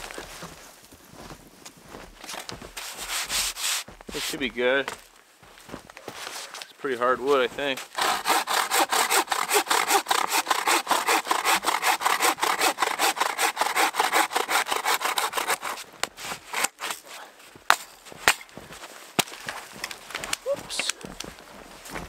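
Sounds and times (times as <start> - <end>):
hand saw cutting wood: 7.8 - 17.0.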